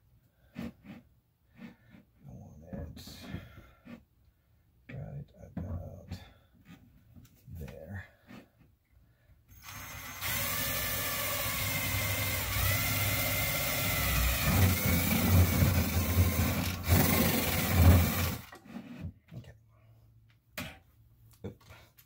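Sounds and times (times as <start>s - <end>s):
power drill boring into wood: 9.5s - 18.6s.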